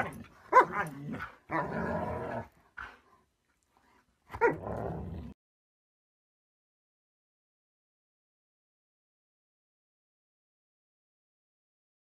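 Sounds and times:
dogs growling and barking: 0.0s - 3.0s, 4.3s - 5.4s.

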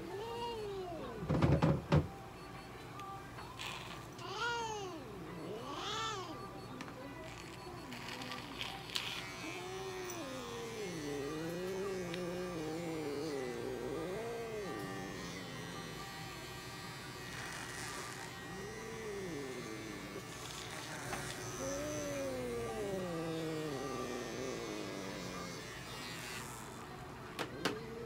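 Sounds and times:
pet clipper buzzing: 7.2s - 28.0s
cat yowling: 9.4s - 16.2s, 18.3s - 25.6s.

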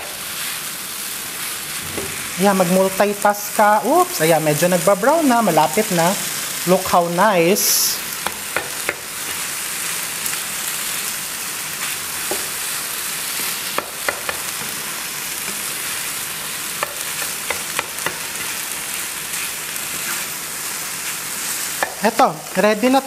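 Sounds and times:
rice sizzling in a hot pan: 0.0s - 23.0s.

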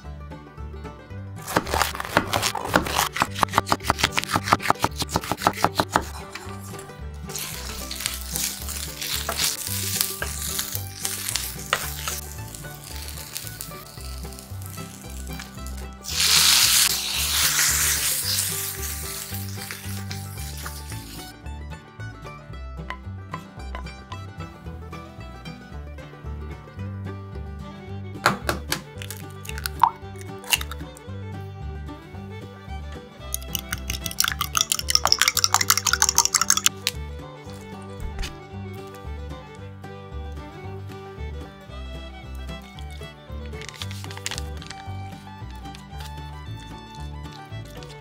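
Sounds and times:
peppers sizzling in a frying pan: 7.3s - 21.2s, 29.0s - 30.8s, 33.3s - 36.9s.

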